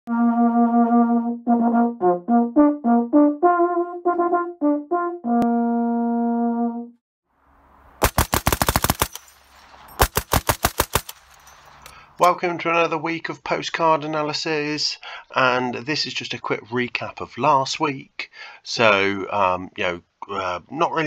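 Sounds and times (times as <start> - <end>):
brass instrument call: 0.1 - 6.9
machine gun burst: 8.0 - 11.8.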